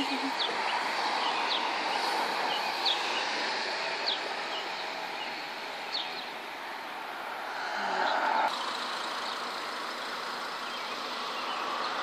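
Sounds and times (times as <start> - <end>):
small birds chirping: 0.0 - 7.2, 7.8 - 12.0.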